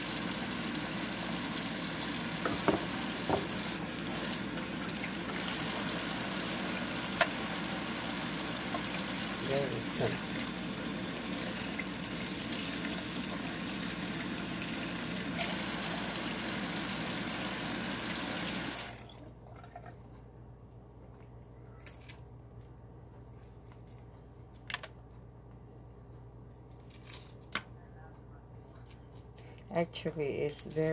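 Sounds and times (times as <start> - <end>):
tap running into sink: 2.4 - 4.7, 7.1 - 7.6, 8.5 - 9.4.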